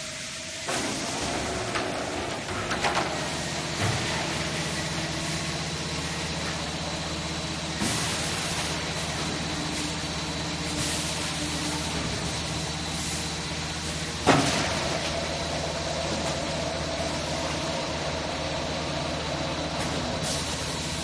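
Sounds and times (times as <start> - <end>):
machine motor hum: 0.6 - 21.0
hiss bursts: 7.8 - 14.0.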